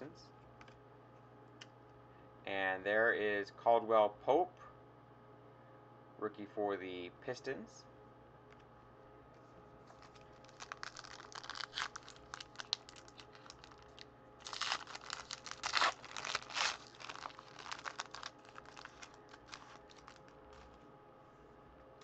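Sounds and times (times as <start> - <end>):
foil wrapper crinkling: 9.8 - 20.8.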